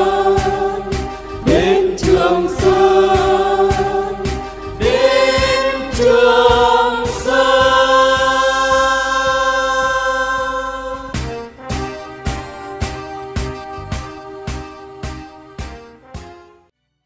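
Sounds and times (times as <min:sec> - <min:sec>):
backing band with steady beat: 0:00.0 - 0:10.0, 0:11.0 - 0:16.3.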